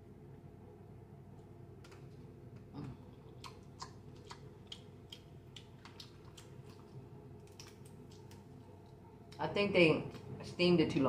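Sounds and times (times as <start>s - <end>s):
low steady hum: 0.0s - 11.0s
crab shells cracking: 3.3s - 8.6s.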